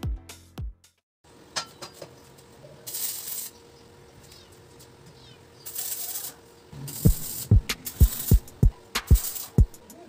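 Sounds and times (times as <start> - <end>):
welding arc sizzling: 2.8 - 3.6, 5.6 - 10.0.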